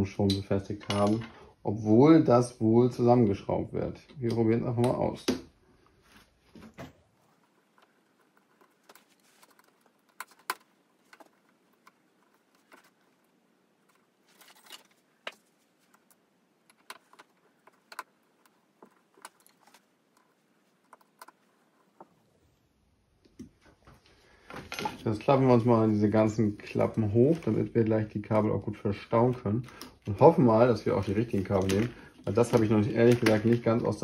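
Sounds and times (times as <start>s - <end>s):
small parts clicking and clinking: 7.3s - 22.1s.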